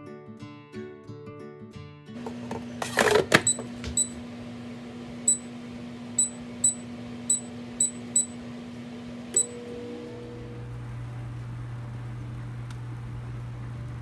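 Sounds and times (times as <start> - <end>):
steady low hum: 3.5 - 14.0
short high beeps: 6.2 - 8.4, 9.4 - 9.8.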